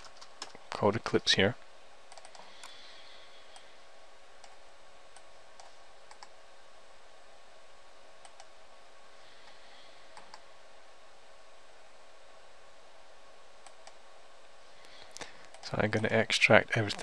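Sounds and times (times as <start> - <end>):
steady low hiss: 0.0 - 17.0
computer mouse clicking: 2.1 - 2.8, 4.4 - 6.4, 8.2 - 8.5, 10.1 - 10.4.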